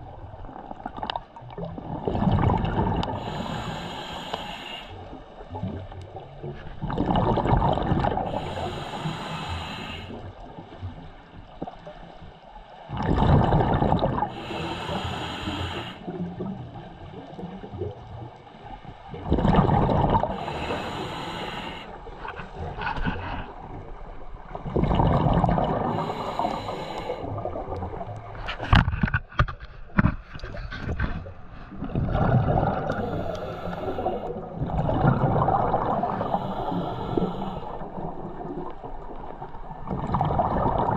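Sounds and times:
exhaled bubbles underwater: 0:00.0 - 0:28.7, 0:30.5 - 0:40.9
regulator inhale hiss: 0:03.1 - 0:05.1, 0:08.2 - 0:10.2, 0:14.3 - 0:16.1, 0:20.3 - 0:22.0, 0:25.8 - 0:27.4, 0:32.9 - 0:34.4, 0:36.1 - 0:38.0.

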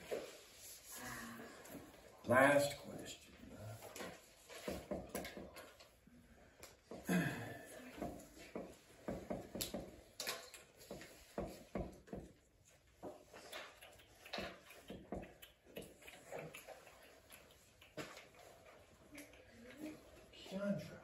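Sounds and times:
marker writing on whiteboard: 0:03.8 - 0:06.0, 0:07.9 - 0:10.1, 0:10.8 - 0:20.3.

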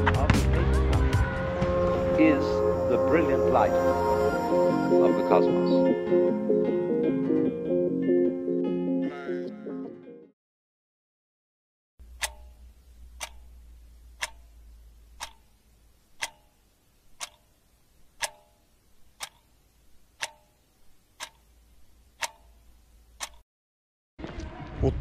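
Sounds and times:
clock ticking: 0:12.0 - 0:23.4.

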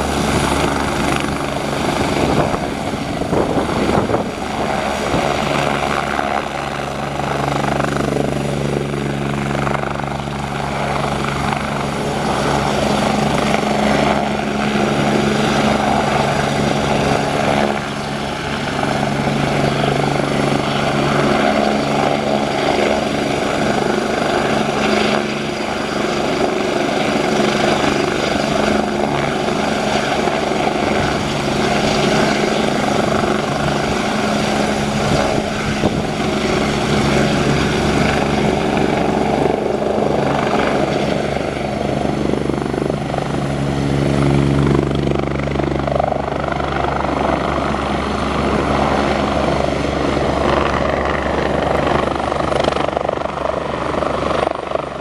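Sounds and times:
helicopter rotor beating: 0:00.0 - 0:55.0
helicopter turbine whine: 0:00.0 - 0:55.0.

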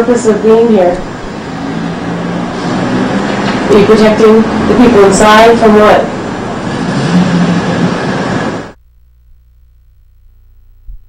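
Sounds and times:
faint low hum: 0:08.4 - 0:11.0.

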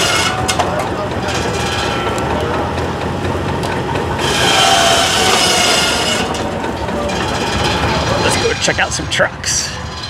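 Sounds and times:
saw cutting wood: 0:00.0 - 0:02.6, 0:04.1 - 0:09.2
machinery running: 0:00.0 - 0:10.0.

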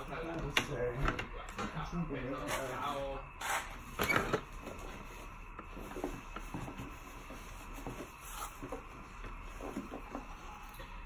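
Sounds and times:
paintbrush strokes on canvas: 0:05.0 - 0:10.7.

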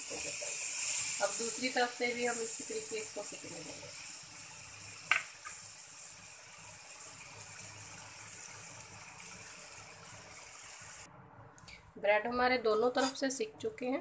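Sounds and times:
bread sizzling on a hot pan: 0:00.0 - 0:11.1.

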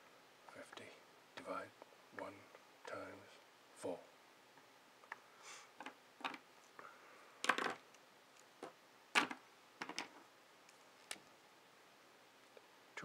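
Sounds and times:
pens knocking on wooden desk: 0:07.4 - 0:07.8, 0:08.6 - 0:10.2.

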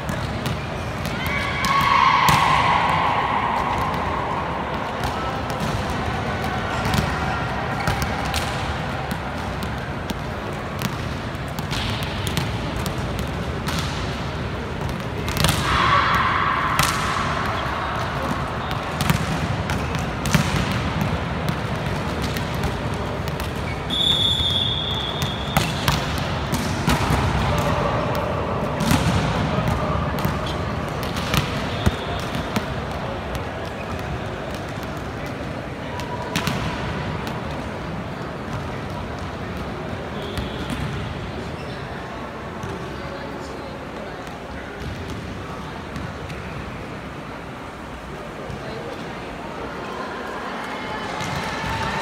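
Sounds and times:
volleyballs struck and bouncing: 0:00.0 - 0:41.5
whistle blast: 0:23.9 - 0:25.6.

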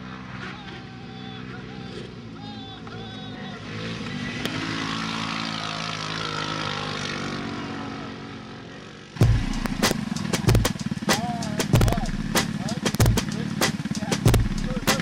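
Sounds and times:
engine droning: 0:00.0 - 0:15.0
rough buggy engine: 0:00.0 - 0:15.0
sharp clicks: 0:09.2 - 0:15.0.

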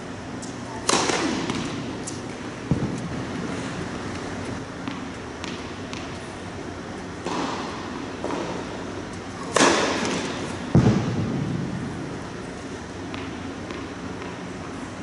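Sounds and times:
tennis racket hitting ball: 0:00.8 - 0:03.1, 0:09.4 - 0:11.0.

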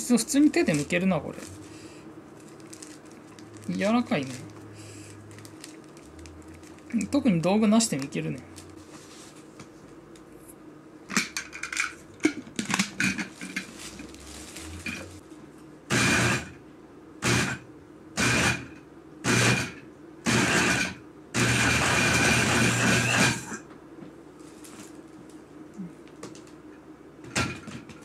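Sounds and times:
blender running: 0:15.9 - 0:16.5, 0:17.2 - 0:17.6, 0:18.2 - 0:23.6.

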